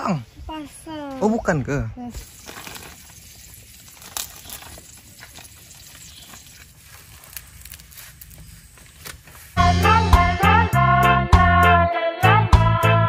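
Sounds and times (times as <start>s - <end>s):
gas camp stove hissing: 2.1s - 9.6s.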